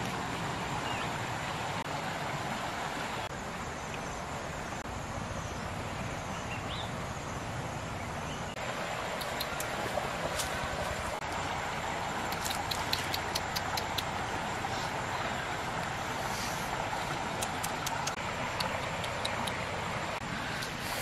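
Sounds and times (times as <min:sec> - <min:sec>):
stream rushing over rocks: 0:00.0 - 0:21.0
faint high ticks: 0:09.1 - 0:10.5, 0:12.3 - 0:14.2, 0:17.3 - 0:19.7.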